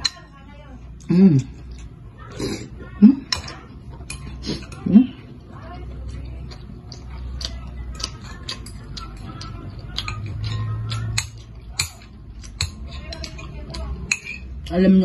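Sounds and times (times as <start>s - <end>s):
cutlery clicking on ceramic bowl: 6.5s - 14.8s.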